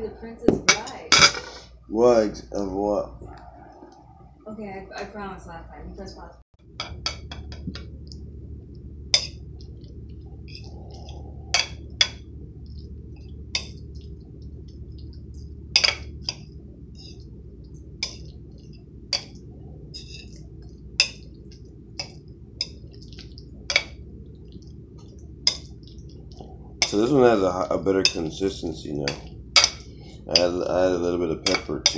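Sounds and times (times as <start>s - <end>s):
steady low hum: 0.0s - 31.9s
cutlery clinking against ceramic bowl: 6.8s - 7.9s, 10.5s - 12.2s, 15.8s - 17.2s, 18.0s - 18.3s, 19.1s - 19.4s, 21.0s - 21.3s, 22.0s - 24.0s, 26.8s - 27.2s, 28.0s - 28.4s, 29.0s - 30.6s, 31.4s - 31.9s.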